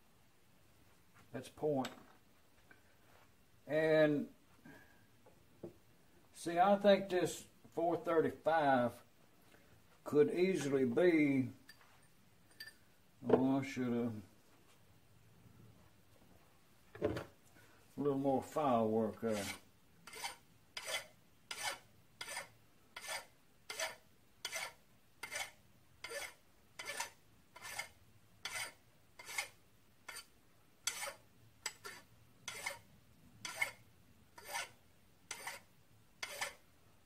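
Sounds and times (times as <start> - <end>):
hand file rasping on metal: 19.3 - 33.8, 34.4 - 36.6.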